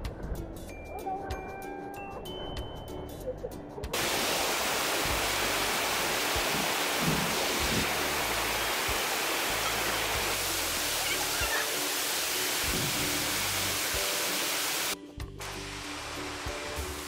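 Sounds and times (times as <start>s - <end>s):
background music: 0.0s - 17.0s
waterfall rushing over boulders: 4.0s - 17.0s.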